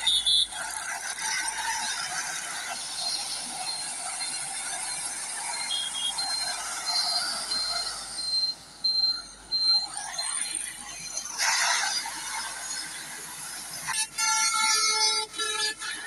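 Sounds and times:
thin high beep: 3.1 - 11.6.

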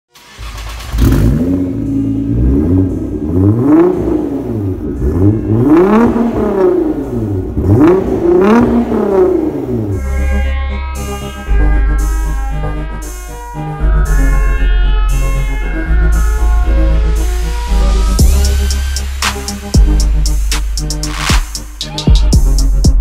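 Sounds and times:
car engine revving: 0.2 - 10.4, 16.7 - 21.8
music: 0.2 - 23.0.

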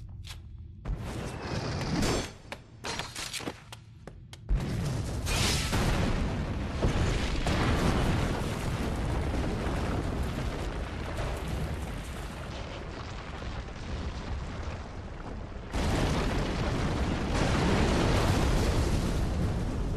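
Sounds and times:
explosion-like rumbling: 4.5 - 19.9.

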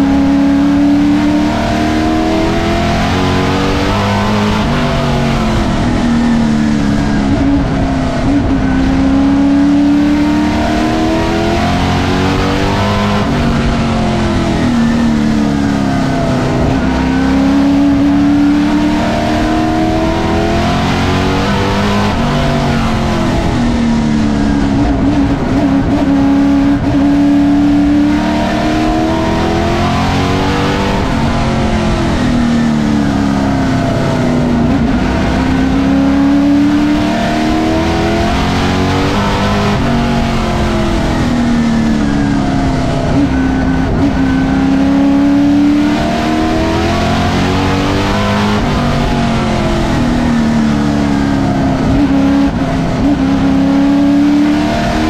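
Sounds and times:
race car engine accelerating: 0.0 - 55.0.

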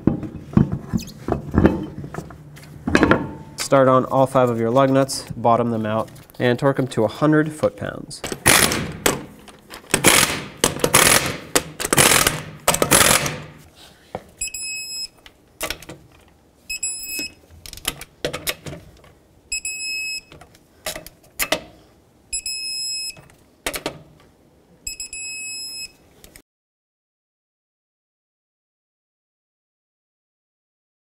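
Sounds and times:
impact gun bursts: 8.4 - 9.3, 9.9 - 13.6
torque wrench beeps: 14.4 - 15.2, 16.7 - 17.4, 19.5 - 20.3, 22.3 - 23.2, 24.9 - 26.0.

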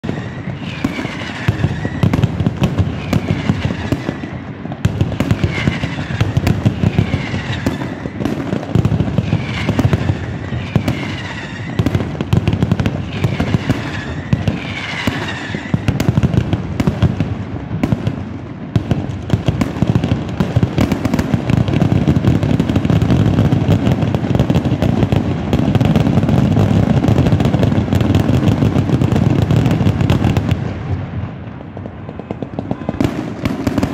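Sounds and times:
falling whistles: 0.0 - 2.2, 9.4 - 11.9, 13.1 - 16.0
firecracker bangs: 0.0 - 33.9
firecracker rumble: 0.0 - 33.9.

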